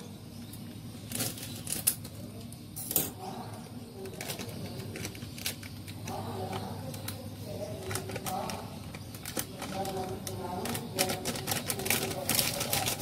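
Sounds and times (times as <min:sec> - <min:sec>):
plastic packet crinkling: 0:04.1 - 0:13.0.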